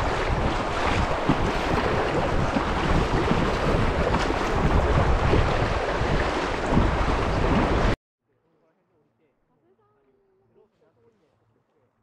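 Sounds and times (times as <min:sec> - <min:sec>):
rushing river water: 0:00.0 - 0:08.0
wind buffeting microphone: 0:00.0 - 0:08.0.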